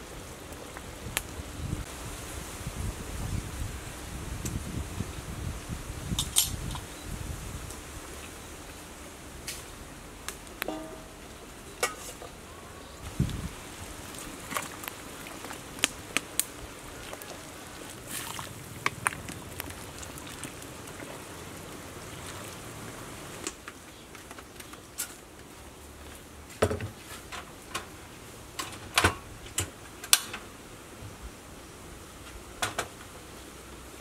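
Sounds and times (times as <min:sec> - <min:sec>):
metal ladle clinking on pot: 0:10.6 - 0:11.2
soup bubbling in a pot: 0:13.0 - 0:23.5.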